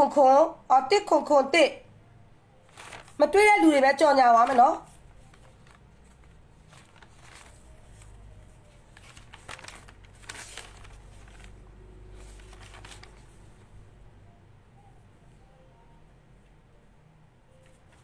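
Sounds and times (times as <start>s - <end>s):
faint low hum: 0.0s - 18.0s
paper rustling: 2.6s - 13.8s, 17.6s - 18.0s.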